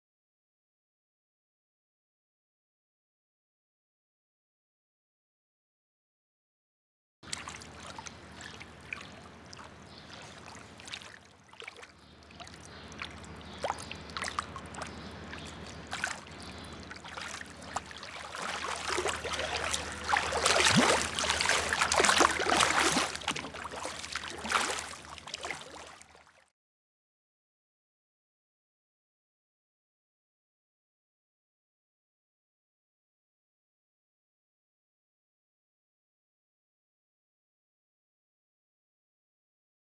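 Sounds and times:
water trickling and splashing: 7.2 - 26.4
low steady hum: 7.3 - 26.1.

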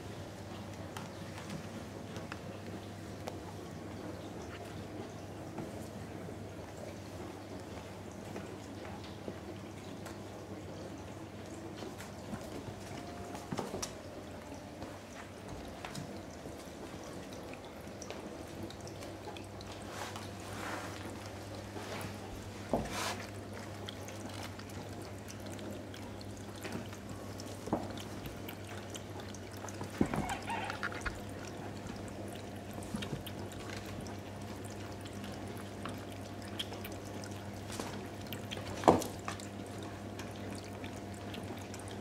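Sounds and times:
fountain pump humming: 0.0 - 42.0
trickling water: 0.0 - 42.0
water splashes and knocks: 11.7 - 42.0.

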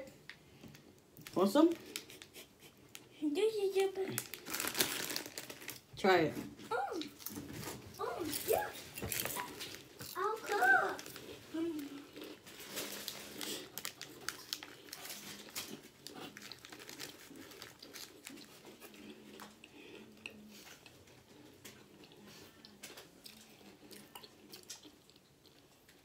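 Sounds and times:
plastic wrapper crinkling: 3.6 - 5.9, 6.9 - 19.0.

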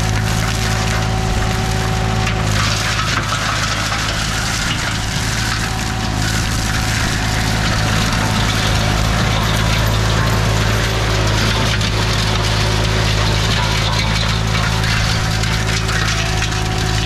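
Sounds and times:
flail mulcher whirring: 0.0 - 17.0
mower engine hum: 0.0 - 17.0.

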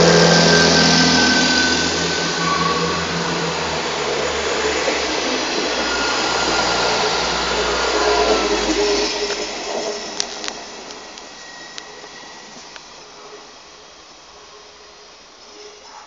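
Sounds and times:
diesel engine drone: 0.0 - 11.4
train wheel and rail noise: 0.0 - 16.0.

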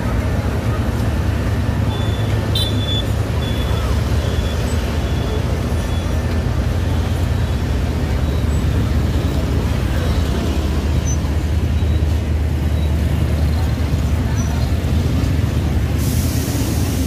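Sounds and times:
locomotive engine rumbling: 0.0 - 17.0.

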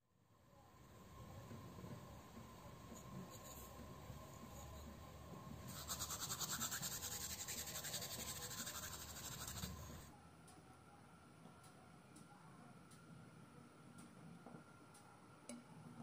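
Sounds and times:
scratchy rasping on zucchini: 5.7 - 10.1.

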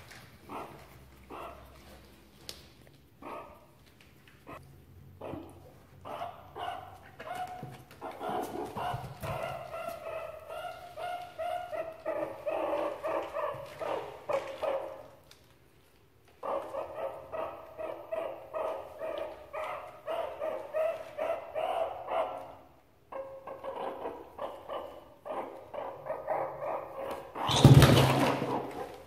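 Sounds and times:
meerkats chirping: 5.2 - 15.1, 16.4 - 29.0.

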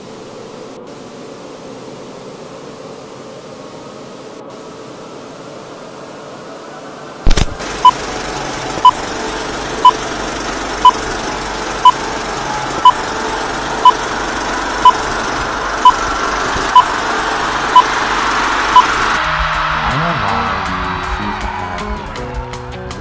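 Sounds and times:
static hiss: 0.0 - 8.1.

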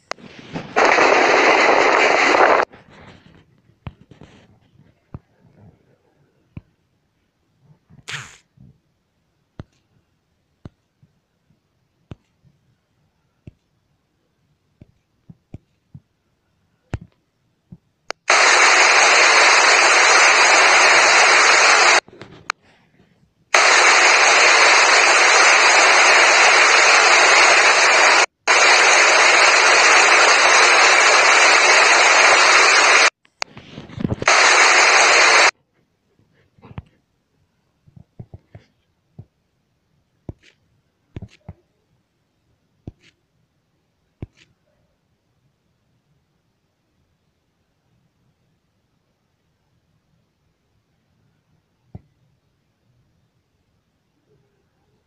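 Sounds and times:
loud static hiss: 0.0 - 4.4, 8.1 - 8.5, 18.1 - 22.5, 23.5 - 35.6.

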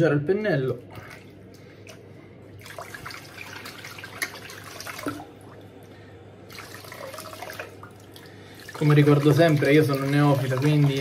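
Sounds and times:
shaving brush squishing lather: 8.8 - 11.0.

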